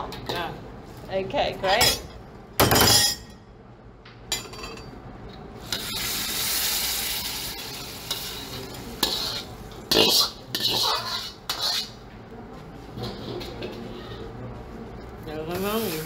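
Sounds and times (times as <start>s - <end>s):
sauce sizzling: 5.6s - 10.3s
ladle scraping in a wok: 5.6s - 12.0s, 12.9s - 14.4s.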